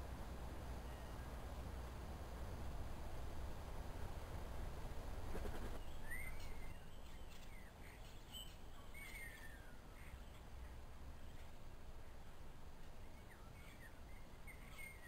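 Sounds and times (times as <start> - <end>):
low outdoor rumble: 0.0 - 15.0
faint bird chirps: 0.8 - 1.4, 5.4 - 15.0
brief rustle: 5.3 - 6.6
bird calls rising and falling: 5.7 - 10.2.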